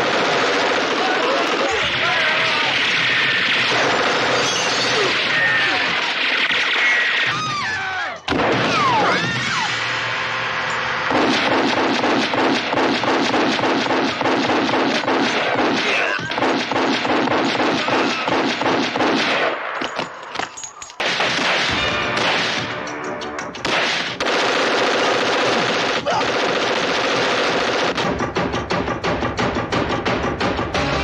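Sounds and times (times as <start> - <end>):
pistol shots rapid fire: 0.0 - 7.3, 11.1 - 19.8, 21.0 - 22.8, 23.6 - 28.5.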